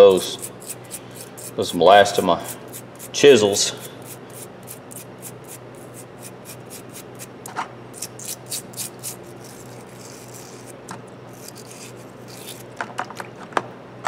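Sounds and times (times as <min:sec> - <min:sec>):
brush scrubbing metal: 0:00.0 - 0:07.3.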